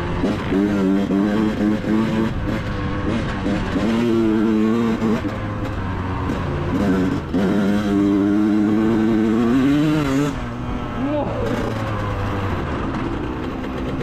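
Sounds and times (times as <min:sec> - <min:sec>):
two-stroke dirt bike revving: 0:00.0 - 0:14.0.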